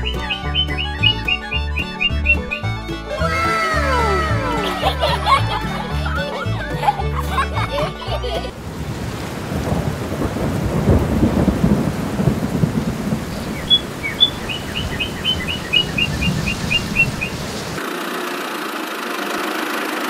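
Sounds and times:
bird chirping high notes: 0.0s - 5.8s, 13.4s - 17.4s
steady rain: 3.6s - 20.0s
thunder rumbling: 8.5s - 17.8s.

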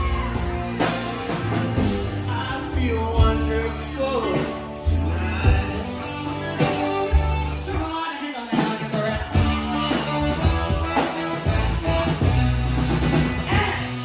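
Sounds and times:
drums: 0.0s - 14.0s
electric bass: 0.0s - 14.0s
electric guitar: 0.0s - 14.0s
person singing: 1.8s - 12.1s, 13.4s - 14.0s.

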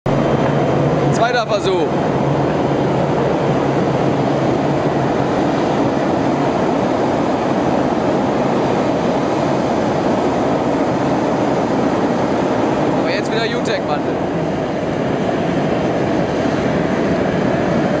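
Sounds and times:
gas burners roaring: 0.1s - 18.0s.

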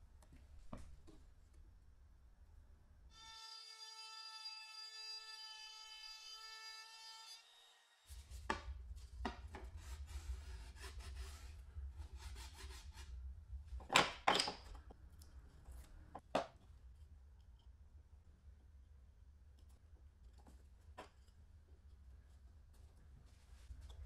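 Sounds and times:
wood knocking and scraping: 8.4s - 11.5s, 13.7s - 14.9s.

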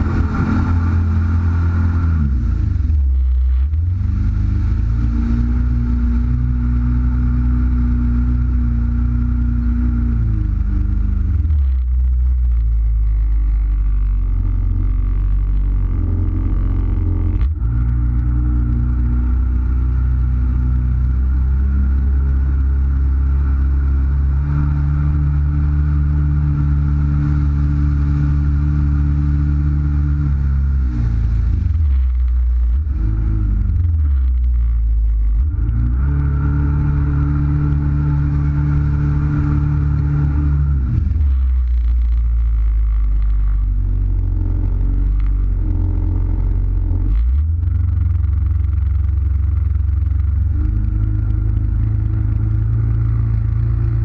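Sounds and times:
jet ski engine running: 0.0s - 35.2s.

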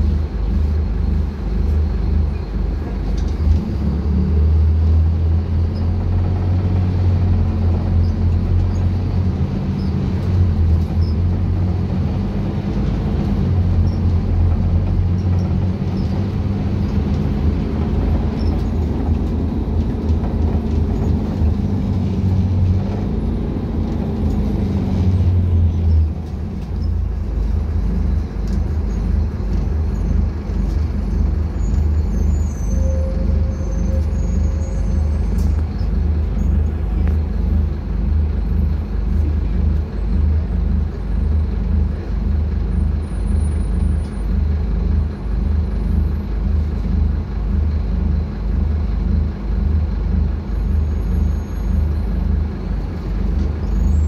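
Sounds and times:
bus diesel engine droning: 0.0s - 54.0s
road noise: 0.0s - 54.0s.

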